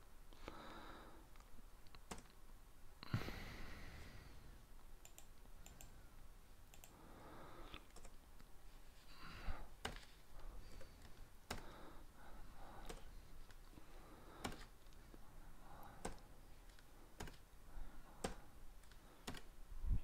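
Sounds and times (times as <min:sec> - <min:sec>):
mouse clicking: 0:01.4 - 0:02.4, 0:05.0 - 0:06.0, 0:06.7 - 0:07.0, 0:07.7 - 0:08.5, 0:12.8 - 0:13.6, 0:15.9 - 0:17.4.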